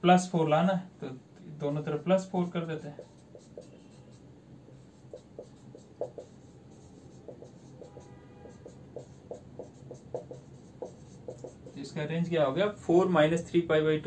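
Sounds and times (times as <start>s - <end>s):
marker writing on whiteboard: 2.1s - 12.0s
marker squeak: 5.0s - 11.7s.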